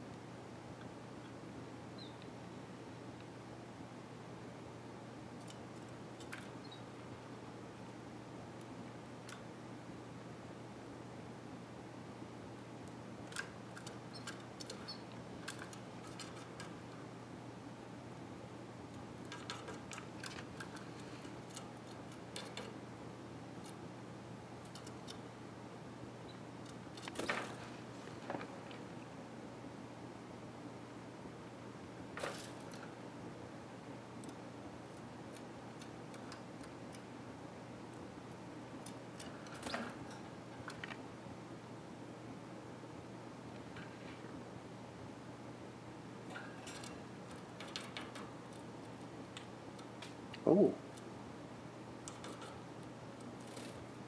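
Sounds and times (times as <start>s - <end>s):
steady low hum: 0.0s - 54.0s
beaks and claws tapping cage: 5.4s - 7.2s, 12.8s - 17.1s, 18.9s - 22.9s, 24.6s - 25.3s, 34.0s - 41.1s, 46.2s - 54.0s.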